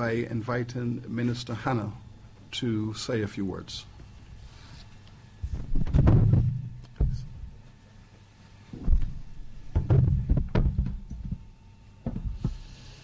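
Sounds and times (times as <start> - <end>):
thumps on microphones: 5.4 - 7.5, 8.7 - 12.6.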